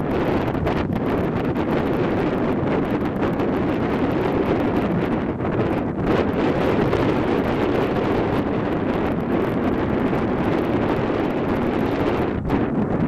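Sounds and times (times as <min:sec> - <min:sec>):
wind buffeting the microphone: 0:00.0 - 0:13.0.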